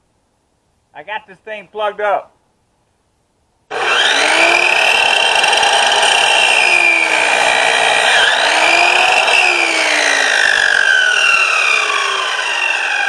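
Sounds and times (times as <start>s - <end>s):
miter saw cutting wood: 3.7s - 13.0s.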